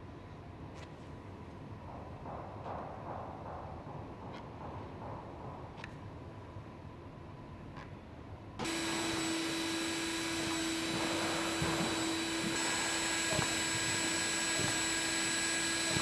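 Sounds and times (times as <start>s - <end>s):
small electric tool motor whine: 8.6s - 16.0s.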